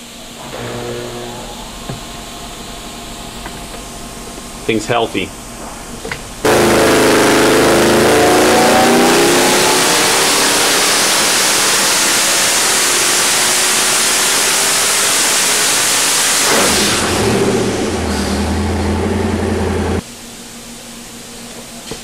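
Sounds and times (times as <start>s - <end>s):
engine at full throttle then idling: 6.4s - 20.0s.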